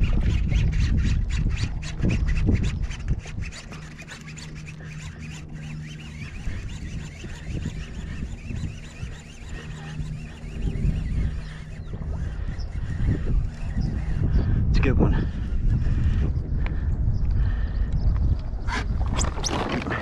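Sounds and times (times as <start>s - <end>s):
fishing reel clicking: 0.0s - 14.4s
wind rumbling on microphone: 0.0s - 20.0s.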